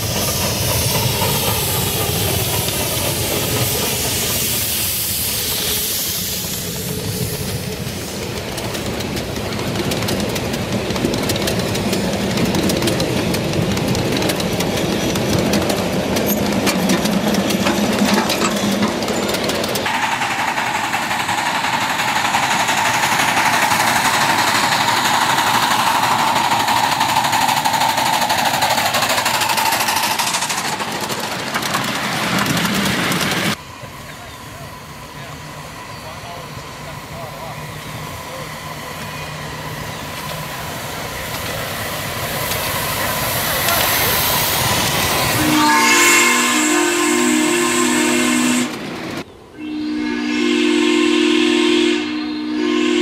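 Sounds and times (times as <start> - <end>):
steam locomotive hiss and drone: 0.0 - 53.0
wheels clattering over rails: 7.8 - 33.6.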